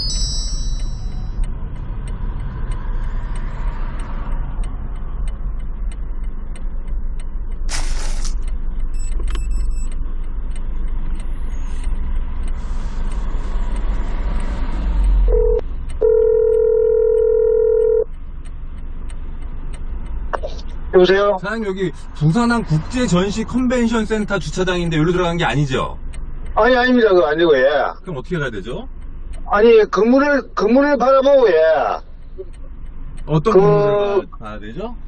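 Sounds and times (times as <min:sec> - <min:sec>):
short high chime: 0:00.0 - 0:01.2
brief beep: 0:09.0 - 0:09.9
telephone call tone: 0:15.3 - 0:18.0.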